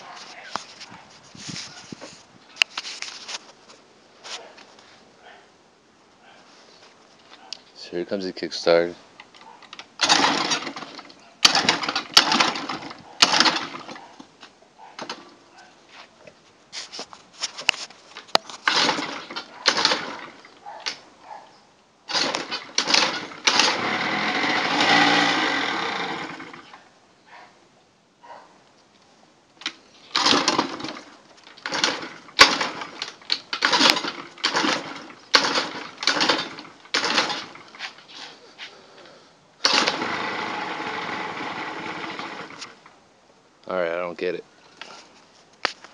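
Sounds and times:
scooter engine cranking: 9.2s - 14.3s, 15.0s - 15.3s, 18.6s - 21.0s, 22.1s - 26.8s, 29.6s - 38.1s, 39.0s - 43.0s.

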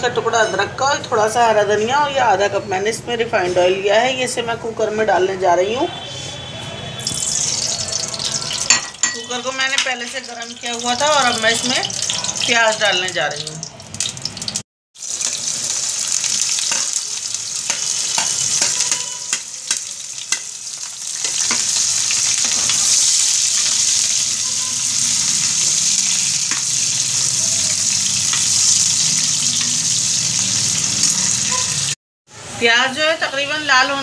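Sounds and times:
onions sizzling in oil: 7.0s - 32.0s.

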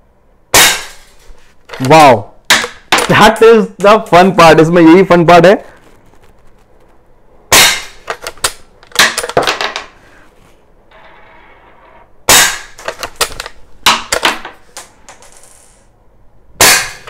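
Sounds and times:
rifle shot: 0.5s - 1.1s, 7.5s - 9.3s, 16.6s - 17.0s.

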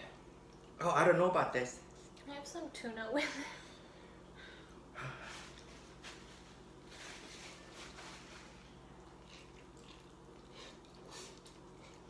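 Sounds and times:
soft slurping of noodles: 6.9s - 12.0s.

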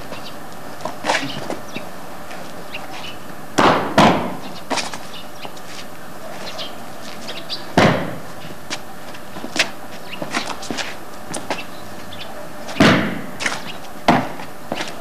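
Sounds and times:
sharp stamping impacts: 7.7s - 8.2s.

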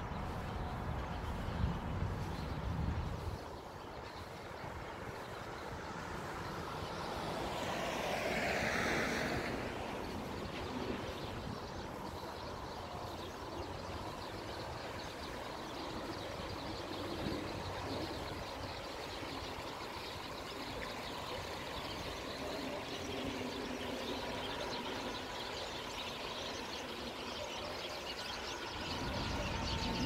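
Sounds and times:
outdoor rushing noise: 0.0s - 27.1s
vehicle passing by: 5.6s - 12.4s.

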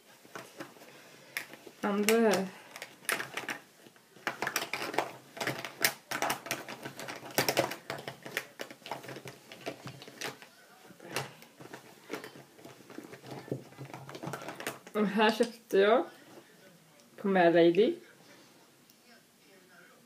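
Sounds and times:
makeup cases clicking and knocking: 0.3s - 15.0s.

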